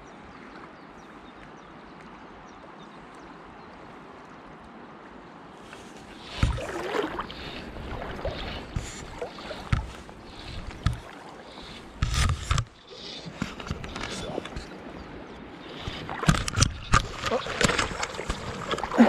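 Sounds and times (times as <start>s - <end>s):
river current rushing: 5.8s - 19.0s.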